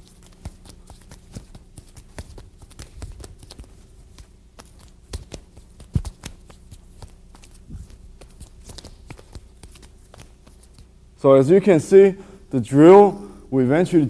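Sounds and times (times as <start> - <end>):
slaps of forearms and hands: 0.0 - 10.9
faint steady hum: 0.0 - 14.0.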